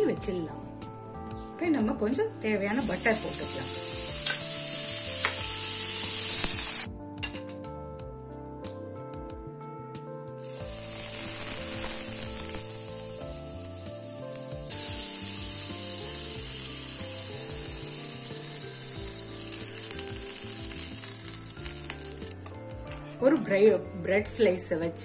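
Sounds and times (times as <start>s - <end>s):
background music: 0.0s - 25.0s
butter sizzling on griddle: 2.7s - 6.9s, 10.4s - 23.0s.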